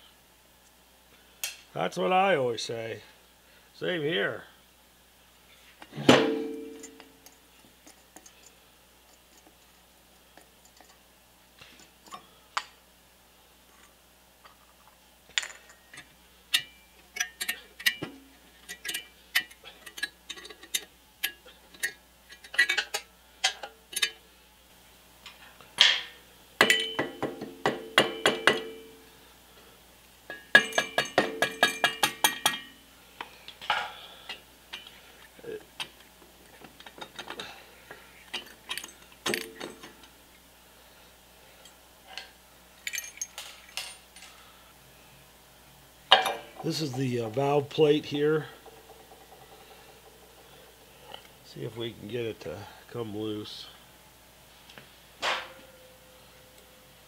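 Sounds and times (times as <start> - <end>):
metal tools clinking on steel bench: 6.1 - 7.4, 15.3 - 24.2, 26.6 - 29.0, 30.3 - 32.8, 38.2 - 40.1, 42.1 - 44.4.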